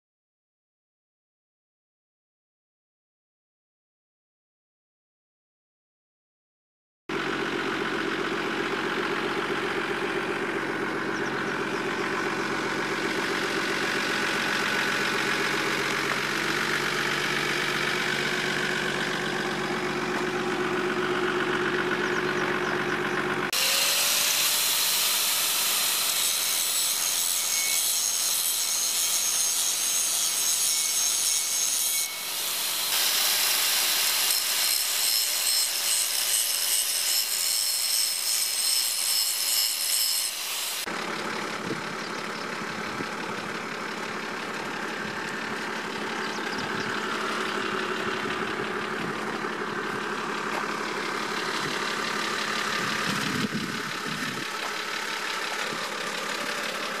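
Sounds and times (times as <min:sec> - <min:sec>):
angle grinder grinding steel: 0:10.7 - 0:22.6, 0:23.4 - 0:40.9.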